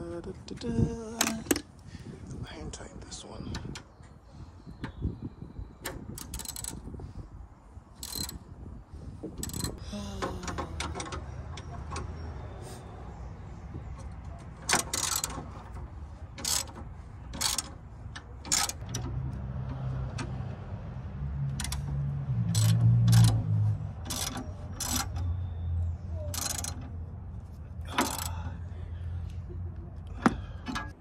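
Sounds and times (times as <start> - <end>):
ratchet metallic clicks: 5.8 - 6.9, 8.0 - 8.4, 9.4 - 9.8, 14.0 - 15.8, 16.4 - 20.4, 21.5 - 25.4, 26.3 - 27.0, 27.9 - 28.5.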